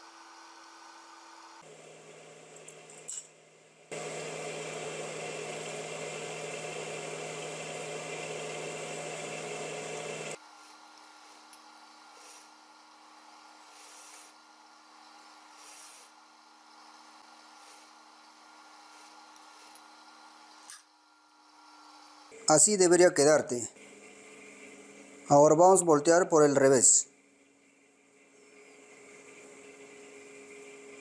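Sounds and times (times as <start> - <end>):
motor hum: 0.0 - 22.5
sewing machine running: 3.9 - 10.4.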